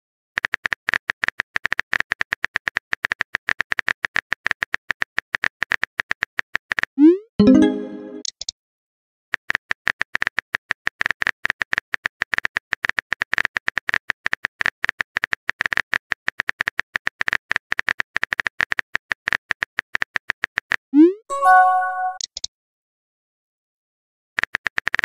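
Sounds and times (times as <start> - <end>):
brief chime: 21.3 - 22.2.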